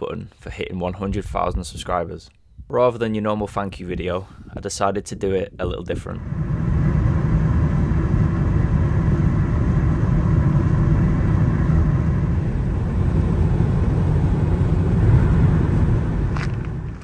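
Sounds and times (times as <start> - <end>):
engine low rumble: 5.6 - 17.0.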